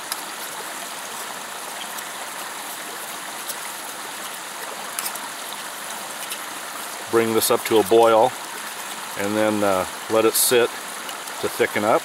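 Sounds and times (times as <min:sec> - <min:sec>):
faint clicks of stirring: 0:01.7 - 0:06.5.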